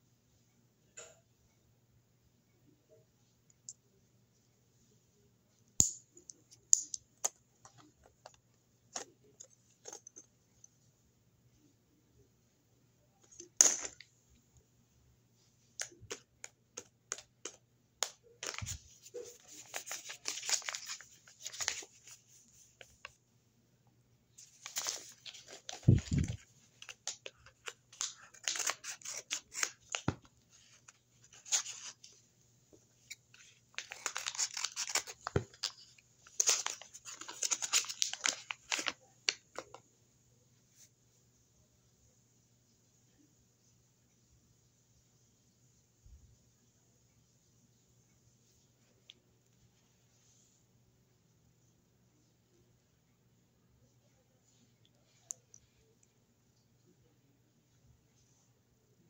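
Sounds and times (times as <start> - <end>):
paper rustling and tearing: 18.4 - 22.2, 24.4 - 32.0, 33.7 - 38.9.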